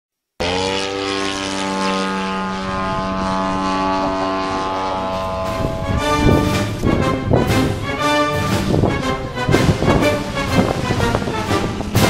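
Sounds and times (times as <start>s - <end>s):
model airplane engine running: 0.4s - 6.3s.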